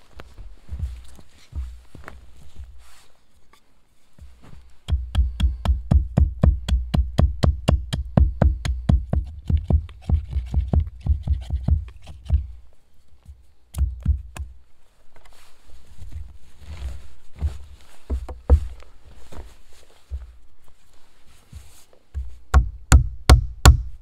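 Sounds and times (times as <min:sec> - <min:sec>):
axe chopping wood: 0:04.8 - 0:12.5.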